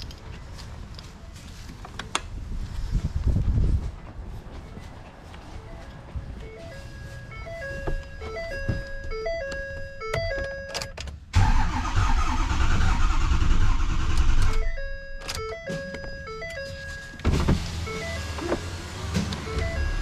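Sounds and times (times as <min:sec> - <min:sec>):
background music with repeating melody: 0:06.4 - 0:10.9, 0:14.6 - 0:17.2.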